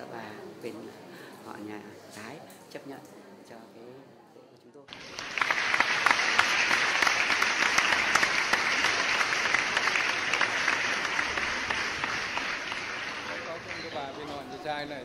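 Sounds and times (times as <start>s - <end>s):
crowd applauding: 4.9s - 15.0s.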